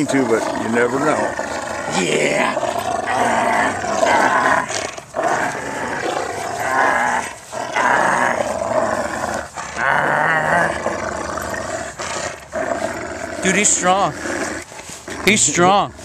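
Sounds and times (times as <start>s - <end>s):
dog growling in play: 0.0s - 16.0s.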